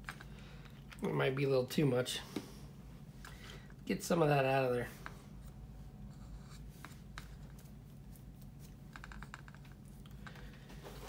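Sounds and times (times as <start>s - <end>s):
low steady hum: 0.0s - 11.0s
paintbrush clicks and scratching: 5.4s - 10.5s.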